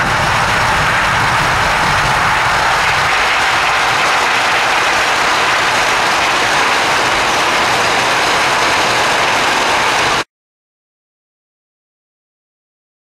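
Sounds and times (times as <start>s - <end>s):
wind rushing: 0.0s - 10.2s.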